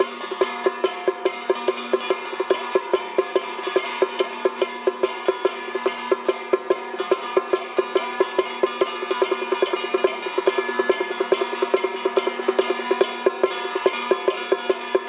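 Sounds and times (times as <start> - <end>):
fast sharp percussion strikes: 0.0 - 15.0.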